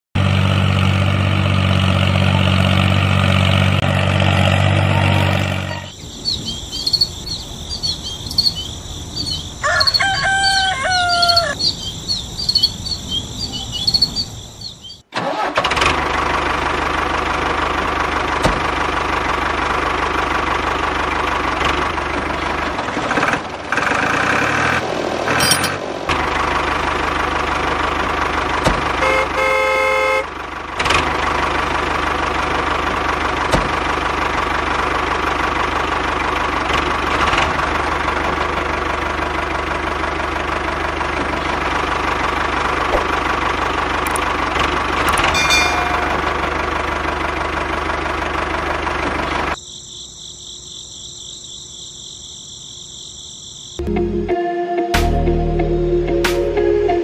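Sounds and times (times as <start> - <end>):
tractor engine running: 0.2 - 49.6
birds chirping: 4.9 - 15.1, 45.1 - 46.6
horn sounding: 29.0 - 30.4, 45.1 - 46.6.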